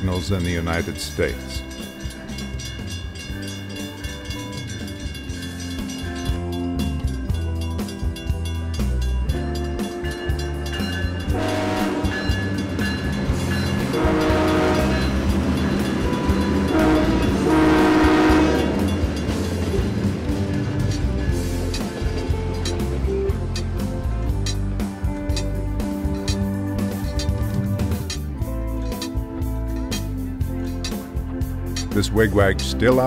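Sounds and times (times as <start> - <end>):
diesel locomotives rumbling: 0.0 - 33.0
guitar instrumental music with beat: 1.2 - 33.0
train air horn blasts: 11.3 - 12.5, 13.8 - 15.4, 16.7 - 19.0.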